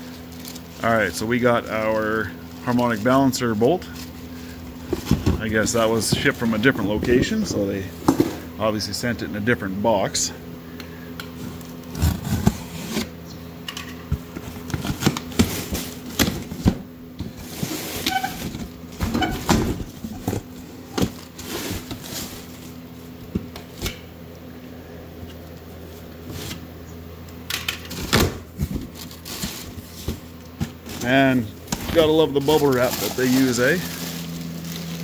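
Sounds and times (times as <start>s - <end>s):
plastic packing rustling: 0.0s - 8.0s, 14.4s - 23.8s, 27.8s - 35.0s.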